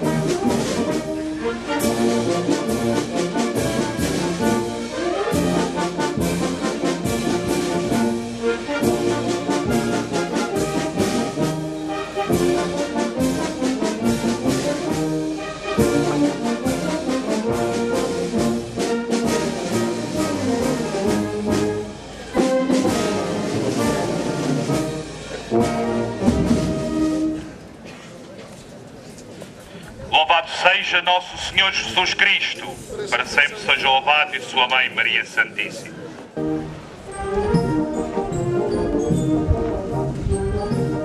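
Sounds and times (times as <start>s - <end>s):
brass band playing: 0.0s - 27.6s, 36.4s - 41.0s.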